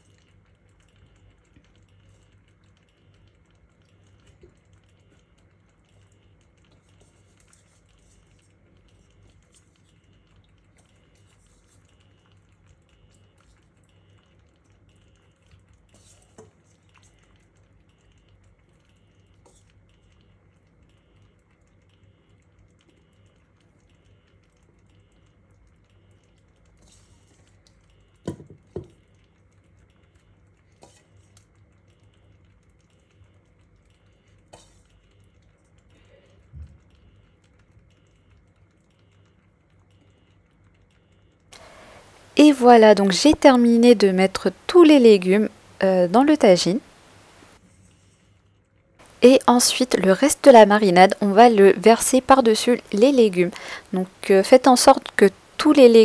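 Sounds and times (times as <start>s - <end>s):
low steady hum: 40.0s - 48.1s, 49.0s - 56.0s.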